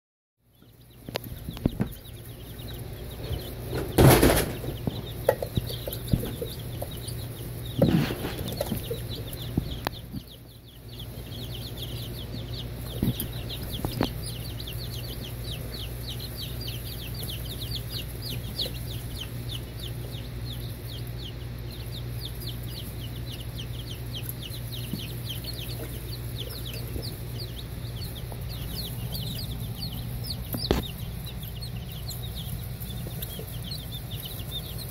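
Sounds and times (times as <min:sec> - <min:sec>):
chicks peeping: 0:00.4 - 0:34.9
steady low hum: 0:00.4 - 0:34.9
loud knocks: 0:03.7 - 0:06.9.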